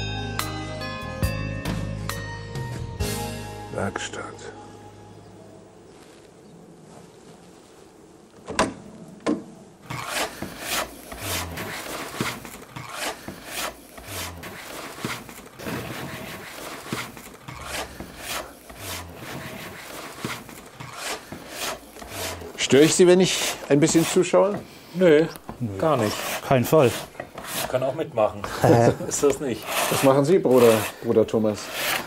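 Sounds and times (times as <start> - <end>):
file scraping wooden handle: 9.8 - 32.0.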